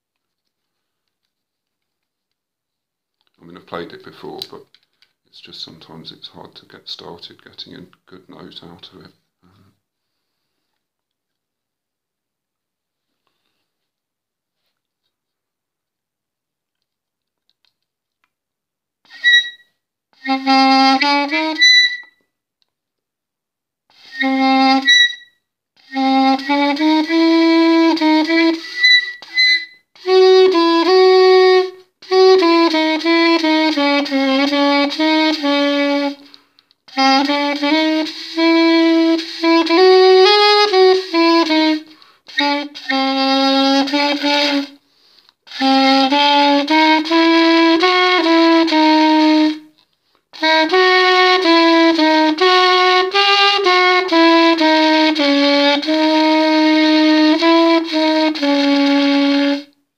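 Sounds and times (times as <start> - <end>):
reed instrument playing a tune: 19.1 - 22.2, 23.9 - 36.3, 36.9 - 44.8, 45.5 - 49.7, 50.4 - 59.7.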